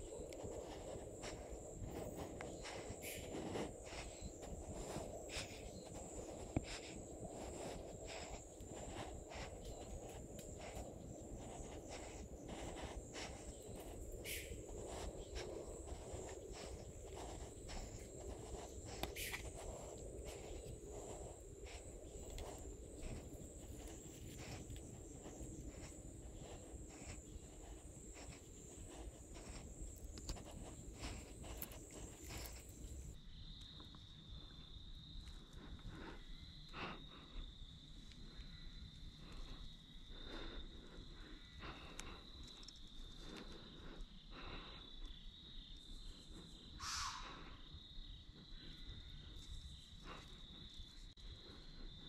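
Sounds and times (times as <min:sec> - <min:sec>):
crickets trilling: 0:00.0 - 0:52.0
small clicks and rustles: 0:14.8 - 0:33.2.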